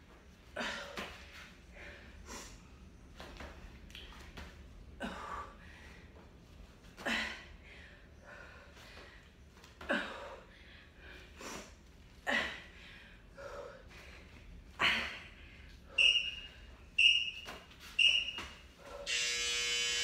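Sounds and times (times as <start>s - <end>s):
person breathing hard: 10.0s - 16.0s
short high timer beeps: 16.0s - 17.4s, 18.0s - 18.5s
long buzzing tone: 19.1s - 20.0s.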